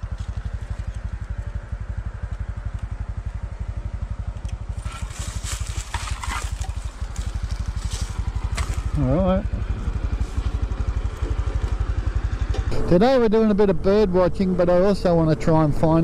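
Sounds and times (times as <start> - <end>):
motorcycle engine idling: 0.0 - 16.0
footsteps in dry leaves: 4.7 - 9.0.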